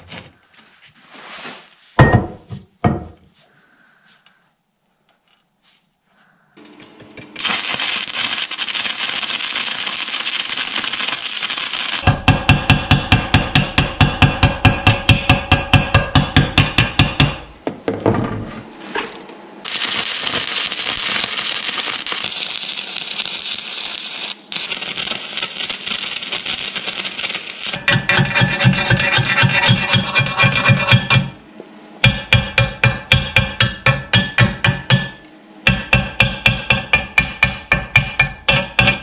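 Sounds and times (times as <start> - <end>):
welding arc crackling: 7.4 - 15.4, 19.6 - 30.3
metal scrape: 19.8 - 31.3.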